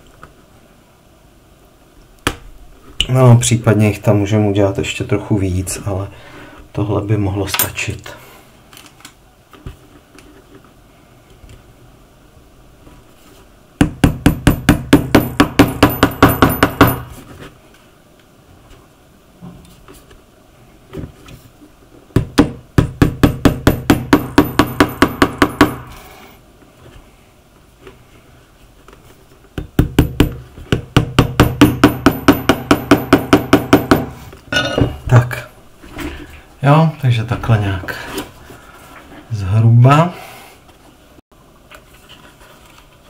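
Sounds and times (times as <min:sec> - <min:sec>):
hammer tapping on shoe: 0:13.8 - 0:17.0, 0:22.2 - 0:25.8, 0:29.6 - 0:34.1.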